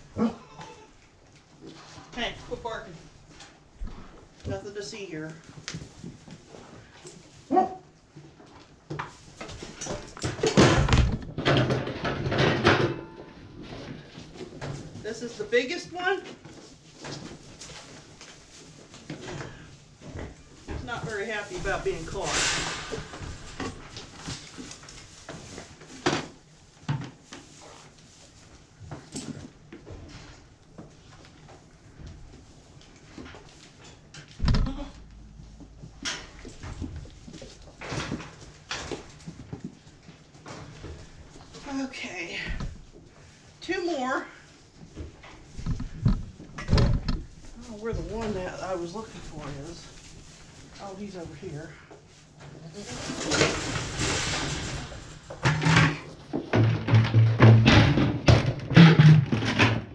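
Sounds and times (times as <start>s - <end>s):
scuffling and knocking: 44.8s - 59.9s.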